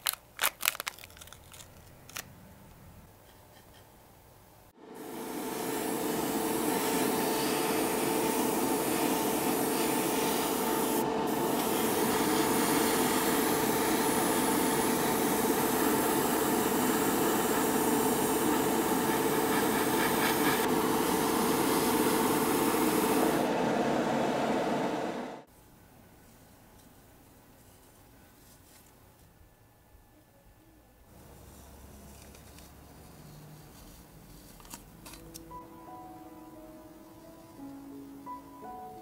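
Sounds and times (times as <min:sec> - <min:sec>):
airbrush spraying hiss: 0:04.9 - 0:23.4.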